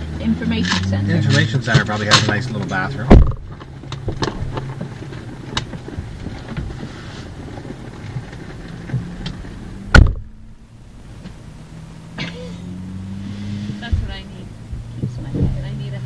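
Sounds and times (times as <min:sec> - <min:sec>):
engine idling: 0:00.0 - 0:16.0
car door shutting: 0:01.4 - 0:04.8, 0:08.9 - 0:11.4.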